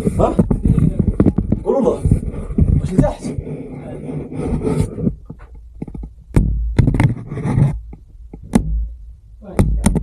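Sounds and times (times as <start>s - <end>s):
low rumbling handling noise: 0.0s - 10.0s.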